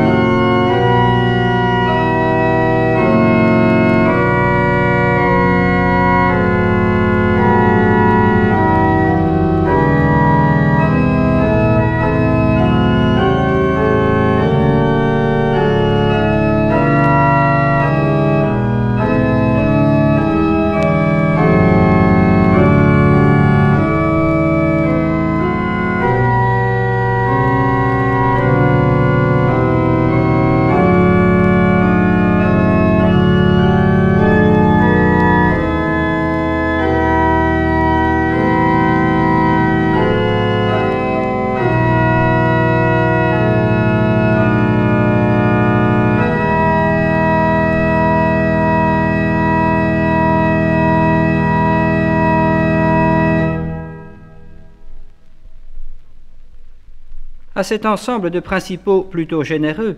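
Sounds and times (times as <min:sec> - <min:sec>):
pipe organ playing chords: 0:00.0 - 0:55.3, 0:57.4 - 0:59.9.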